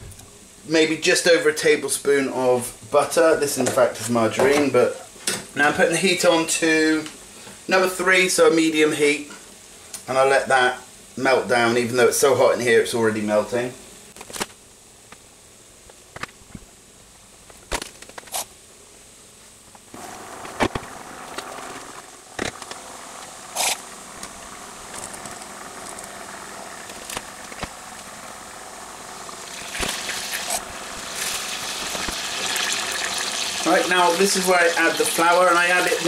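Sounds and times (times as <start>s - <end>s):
fat sizzling hiss: 19.9s - 36.0s
margarine crackling in a saucepan: 29.1s - 36.0s.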